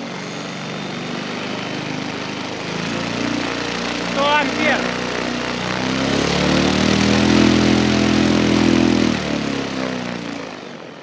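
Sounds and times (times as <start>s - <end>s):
electric motor spinning propeller: 0.0s - 11.0s.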